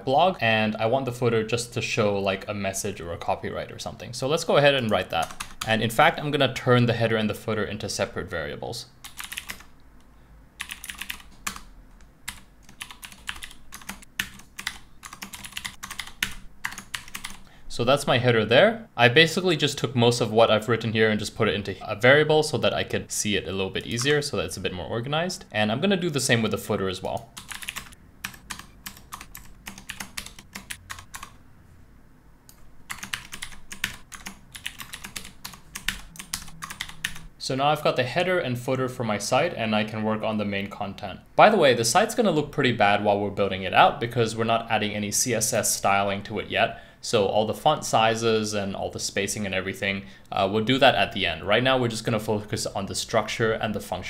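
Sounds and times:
typing on computer keyboard: 4.8 - 5.7, 9.0 - 9.7, 10.6 - 11.7, 12.3 - 17.4, 27.0 - 31.4, 32.9 - 37.3.

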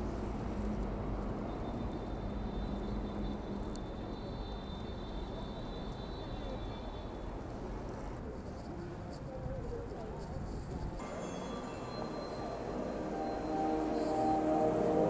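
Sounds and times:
busy street background noise: 0.0 - 15.0
faint high tone: 11.0 - 15.0.

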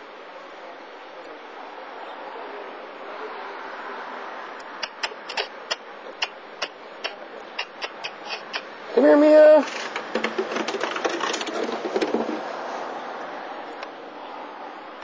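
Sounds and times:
steady outdoor hiss: 0.0 - 15.0
sharp irregular clicks: 4.6 - 8.7.

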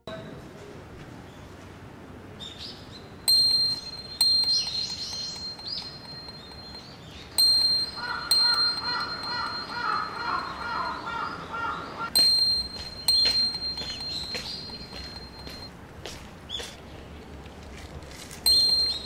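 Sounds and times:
steady outdoor hiss: 0.1 - 19.0
birds chirping: 2.4 - 15.7
high-pitched metal chime: 3.3 - 11.2, 12.1 - 15.7, 18.5 - 19.0.

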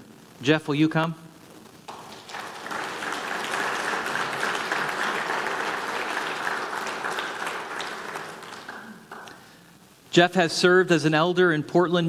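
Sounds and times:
crowd applauding: 1.9 - 9.6.

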